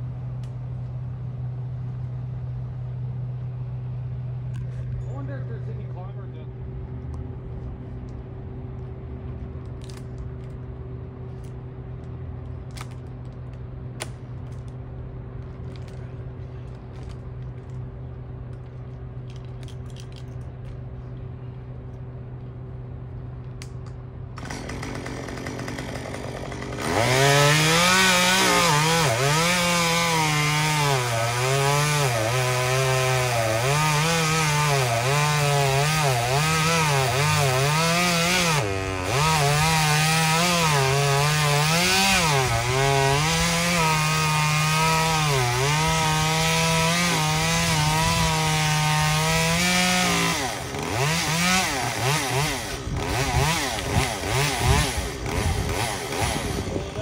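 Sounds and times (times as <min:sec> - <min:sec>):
chainsaw cutting wood: 0:24.4 - 0:57.0
chainsaw idling: 0:24.4 - 0:57.0
chainsaw revving: 0:24.4 - 0:57.0.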